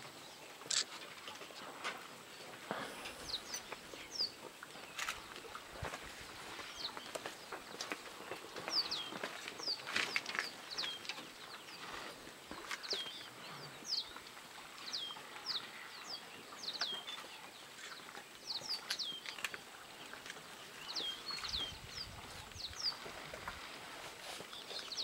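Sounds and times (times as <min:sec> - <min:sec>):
small birds whistling: 0:02.7 - 0:05.1.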